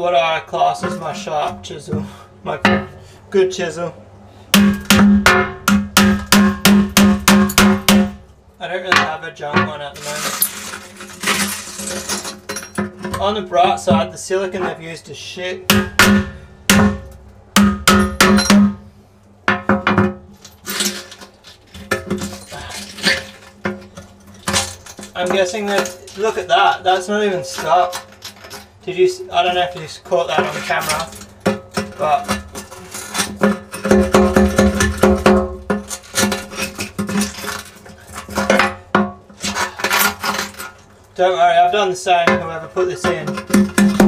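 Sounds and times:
hammer striking metal chisel: 4.6s - 8.2s, 15.7s - 18.8s
scraping on glass: 9.7s - 15.0s, 20.3s - 41.2s.

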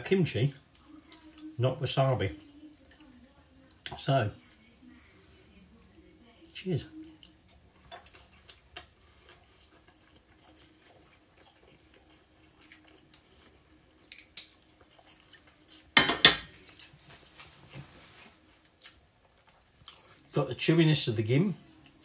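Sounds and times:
tableware clatter: 16.0s - 16.6s.

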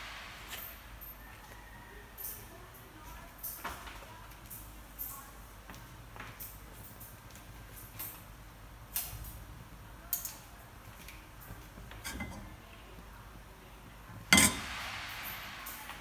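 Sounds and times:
hot oil sizzling in pot: 12.0s - 12.6s, 14.3s - 16.0s
metal clinks against pot: 12.0s - 12.6s, 14.3s - 15.8s.

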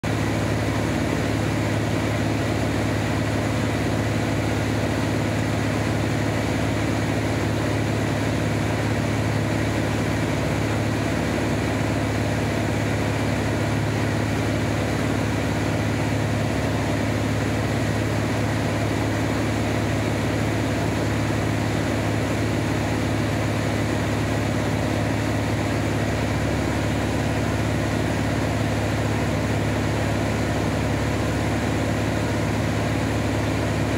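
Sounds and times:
propeller aircraft engine droning: 0.0s - 33.9s.

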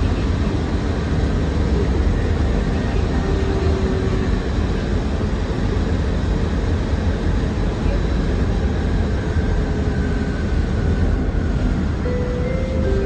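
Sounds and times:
bus cabin rumble: 0.0s - 13.0s
faint tone: 12.0s - 13.0s.

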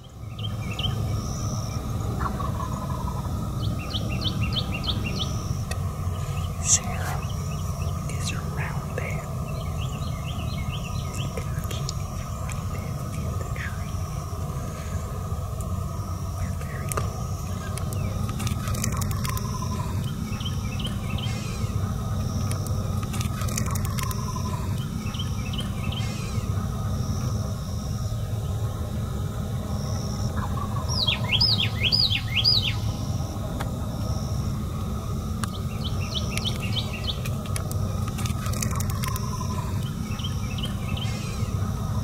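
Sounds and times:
birds chirping: 0.0s - 42.0s
low background rumble: 0.0s - 42.0s
whistled bird notes: 30.8s - 32.9s.

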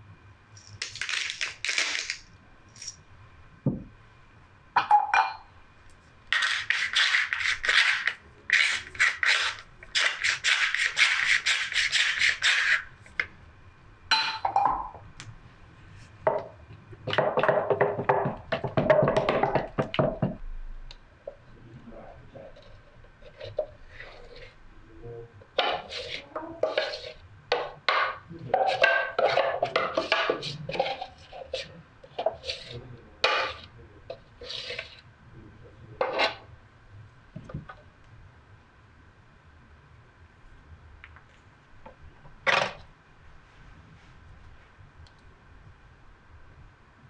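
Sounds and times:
wooden spatula scraping plastic jug: 6.3s - 12.9s, 22.5s - 24.6s, 25.6s - 35.0s.

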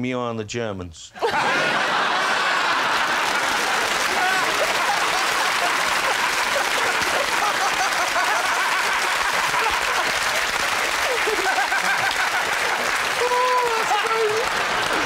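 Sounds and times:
scattered laughter: 1.2s - 10.4s, 11.0s - 13.1s
audience applauding: 1.6s - 15.0s.

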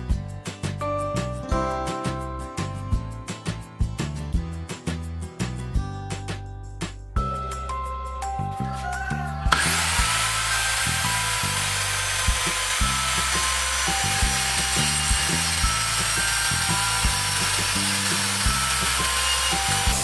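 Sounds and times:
background music with steady beat: 0.0s - 20.0s
circular saw cutting plywood: 9.5s - 20.0s.

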